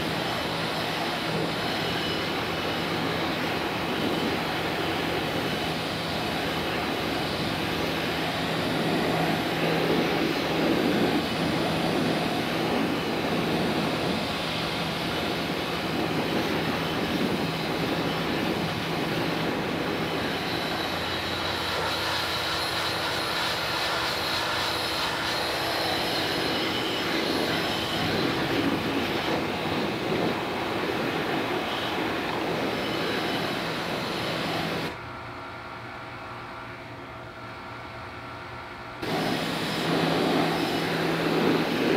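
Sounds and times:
pressure washer motor humming: 0:00.0 - 0:35.0, 0:39.0 - 0:41.9
water jet hissing on metal: 0:39.0 - 0:41.9.

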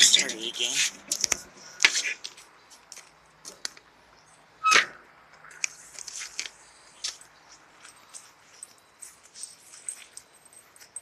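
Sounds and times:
rustling: 0:05.6 - 0:11.0.

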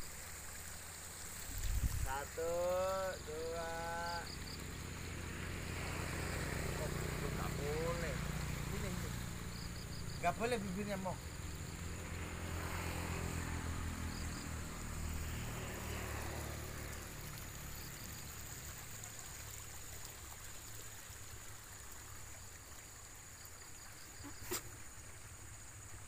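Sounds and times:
faint hiss: 0:00.0 - 0:26.0
high insect drone: 0:00.0 - 0:26.0
motorcycle engine passing: 0:01.6 - 0:18.5.

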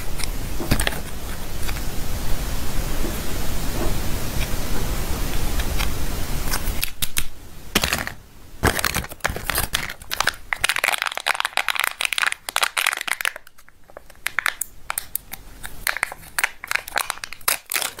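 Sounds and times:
steady hiss: 0:00.0 - 0:18.0
foil wrapper crinkling: 0:07.8 - 0:18.0.

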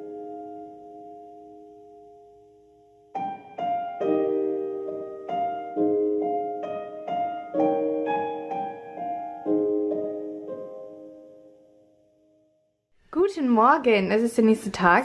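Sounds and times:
gentle piano melody: 0:00.0 - 0:12.7.

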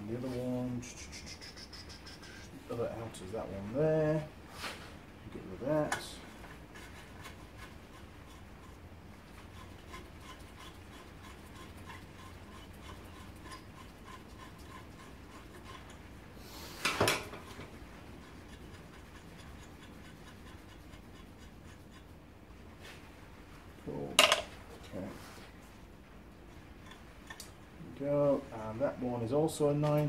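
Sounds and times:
spokes rubbing and ticking: 0:00.2 - 0:03.8, 0:05.7 - 0:22.3, 0:26.7 - 0:27.7.

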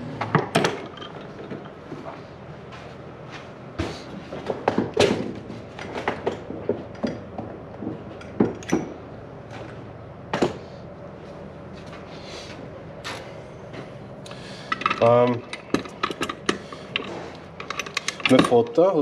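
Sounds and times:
hand tools and metal parts clinking: 0:14.3 - 0:19.0.

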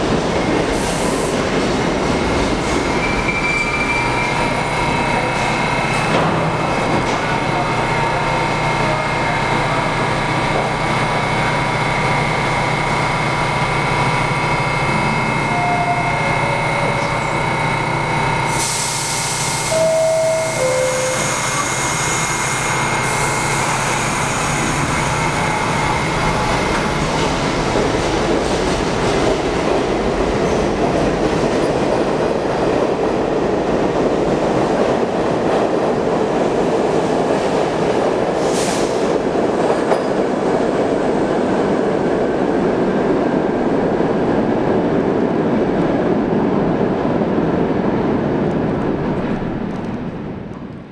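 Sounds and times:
train wheels rumbling and clattering: 0:00.0 - 0:19.8, 0:20.4 - 0:50.9
train door hiss: 0:00.7 - 0:01.4, 0:18.5 - 0:24.8, 0:38.4 - 0:39.1
two-tone descending door chime: 0:19.7 - 0:21.4.

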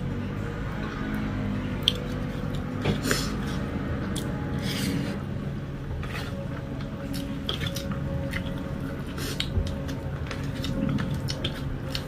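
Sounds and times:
chewing and mouth noises: 0:01.7 - 0:05.1, 0:06.0 - 0:12.0.

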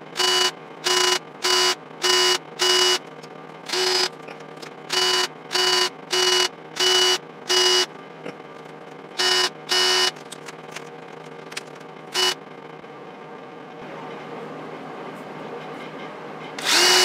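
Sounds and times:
drill grinding against metal: 0:03.7 - 0:04.1, 0:16.6 - 0:17.0.

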